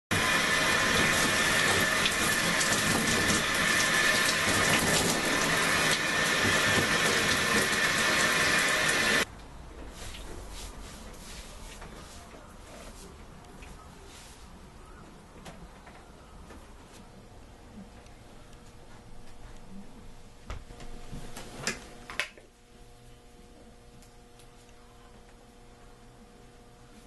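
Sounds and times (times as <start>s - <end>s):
shower water running: 0.1s - 9.3s.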